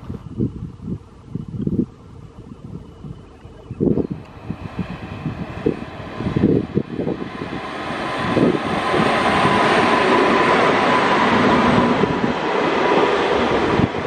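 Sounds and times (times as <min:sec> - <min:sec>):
steady whine: 0:00.0 - 0:14.0
wheels rumbling on rails: 0:00.0 - 0:14.0
train passing at speed: 0:03.8 - 0:14.0.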